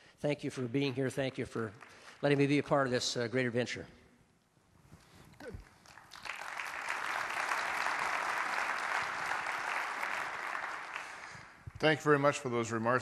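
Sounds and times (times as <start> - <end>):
audience applauding: 5.6 - 11.6.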